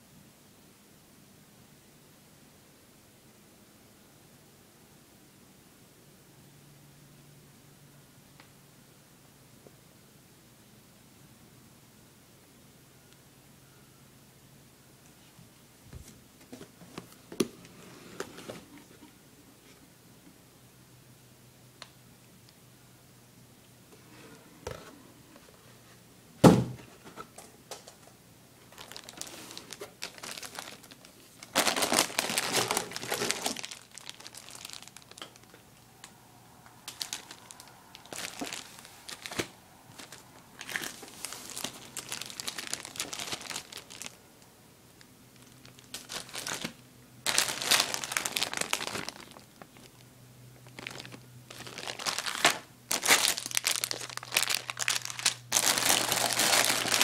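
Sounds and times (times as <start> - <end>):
plastic bags crinkling: 28.6 - 35.6, 36.8 - 44.2, 45.3 - 57.0.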